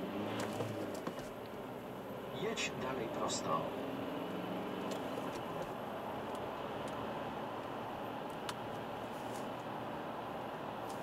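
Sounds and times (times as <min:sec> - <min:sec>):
car engine and tyre hum: 0:00.0 - 0:11.0.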